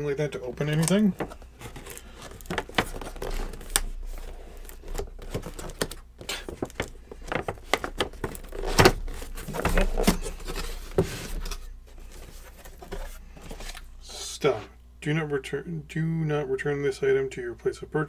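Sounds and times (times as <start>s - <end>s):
cardboard box being opened: 0.8s - 13.8s.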